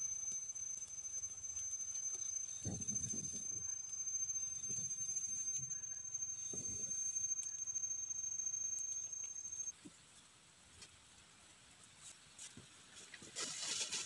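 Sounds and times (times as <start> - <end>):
high-pitched insect whine: 0.0 - 9.7.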